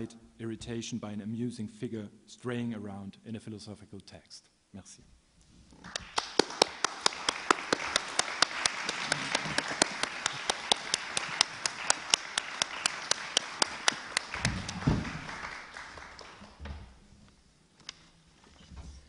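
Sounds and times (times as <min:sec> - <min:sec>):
audience applauding: 0:05.8 - 0:16.6
sharp close claps: 0:05.8 - 0:16.6.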